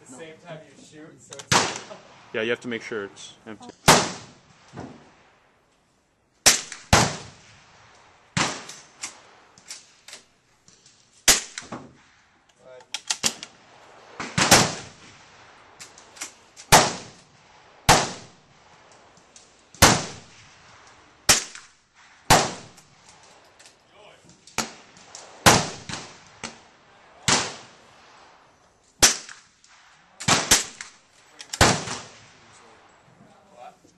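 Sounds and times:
gunshots: 1.4 - 3.1, 3.8 - 5.2, 6.4 - 9.7, 11.2 - 12.1, 13.1 - 18.6, 19.2 - 23.1, 24.5 - 28.2, 29.0 - 32.9.

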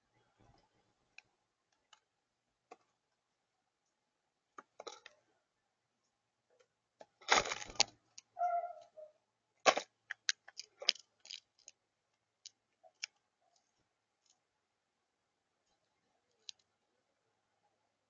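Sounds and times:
bird squeaky note: 8.4 - 9.1.

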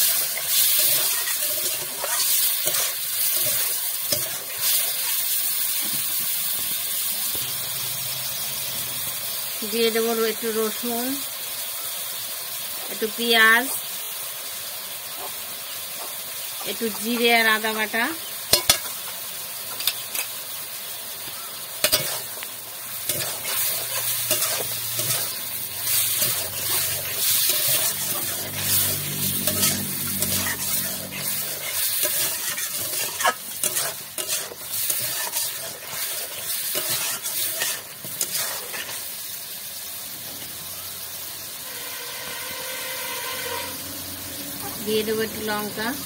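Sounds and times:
metal spoon scraping pan: 0.0 - 5.2, 18.5 - 19.0, 21.8 - 39.0
chicken sizzling in hot oil: 0.0 - 46.0.

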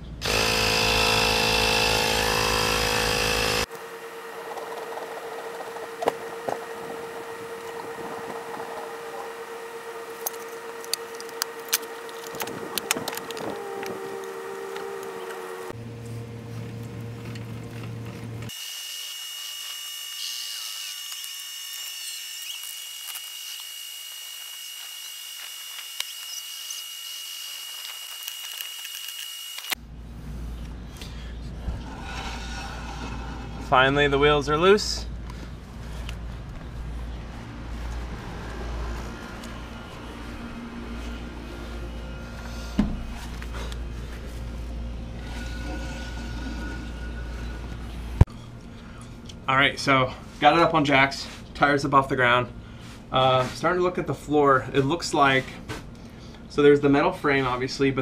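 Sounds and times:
cordless power tool running: 0.2 - 15.8, 18.4 - 29.8, 37.6 - 48.3.

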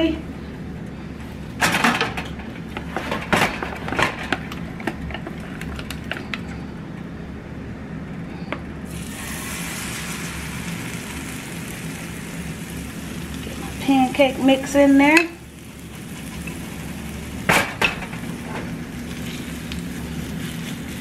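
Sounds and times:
batter sizzling in oil: 8.9 - 21.0.

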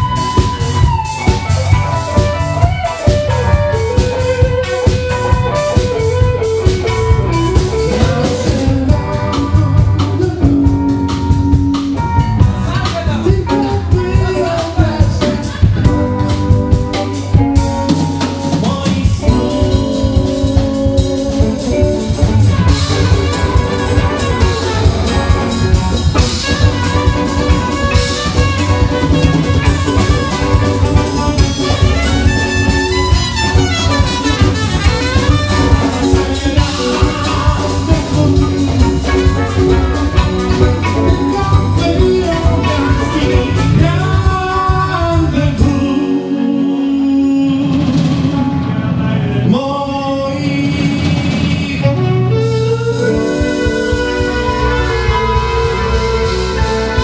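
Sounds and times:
bass guitar: 0.0 - 57.0
drum kit: 0.0 - 57.0
electric guitar: 0.0 - 57.0
keyboards: 0.0 - 57.0
man singing: 0.0 - 57.0
trumpet: 13.6 - 46.7, 51.6 - 57.0.

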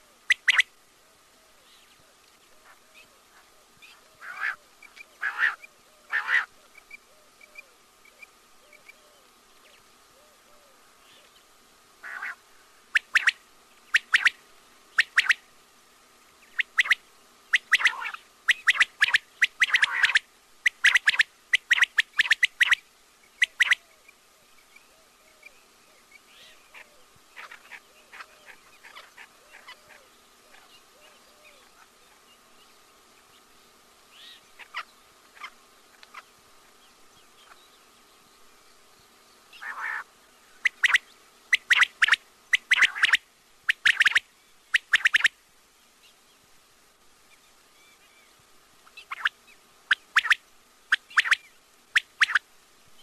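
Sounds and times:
quail calling: 0.0 - 0.7, 2.5 - 9.3, 12.0 - 15.5, 16.5 - 22.8, 23.4 - 24.0, 26.3 - 32.1, 34.1 - 36.3, 39.5 - 45.4, 48.9 - 52.4
faint steady hum: 0.0 - 53.0.

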